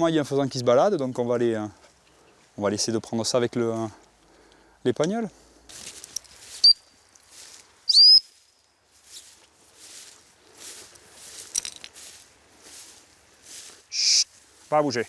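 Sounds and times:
footsteps rustling through crop: 5.2s - 15.0s
high chirp: 6.5s - 7.0s, 7.9s - 8.6s, 13.9s - 14.3s
rising whistle: 7.9s - 8.2s.

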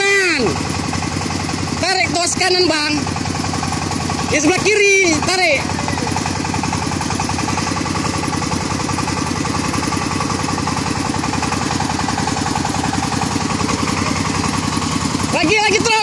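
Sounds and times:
combine harvester engine running: 0.0s - 16.0s.

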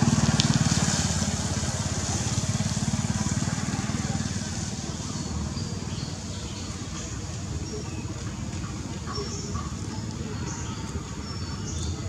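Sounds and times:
small engine running: 0.0s - 8.9s.

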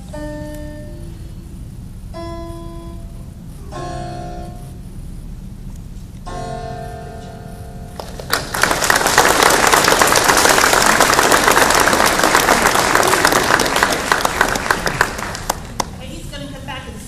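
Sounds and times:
held keyboard chord: 0.0s - 5.2s, 6.2s - 8.4s
audience applauding: 8.0s - 16.0s.

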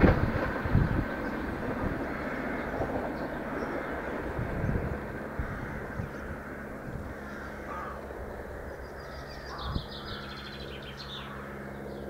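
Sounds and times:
diesel train droning: 0.0s - 12.0s
birds calling: 1.0s - 12.0s
rapid high chattering bird call: 7.1s - 12.0s.

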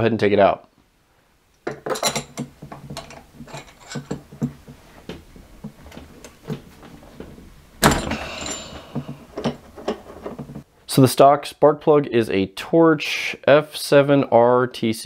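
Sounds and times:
metal scraping rattle: 1.9s - 4.5s.

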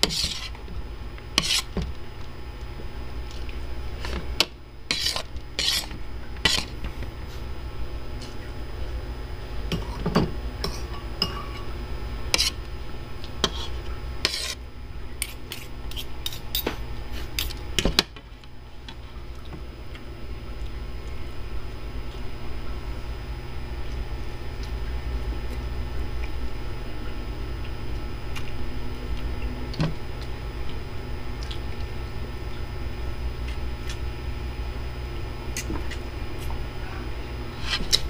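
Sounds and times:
fork scraping on ceramic plate: 0.0s - 0.6s, 1.4s - 1.7s, 4.9s - 6.7s, 12.3s - 12.6s, 13.4s - 14.6s, 15.2s - 17.6s
low hum: 0.0s - 38.0s.

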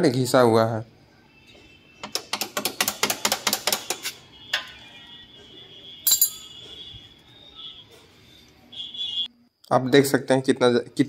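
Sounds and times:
metallic clinks of tools: 6.0s - 6.7s.

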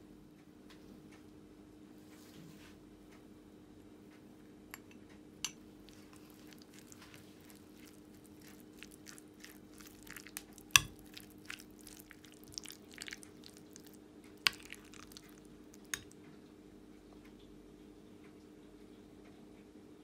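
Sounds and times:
spoon stirring food squishing: 5.5s - 16.2s.

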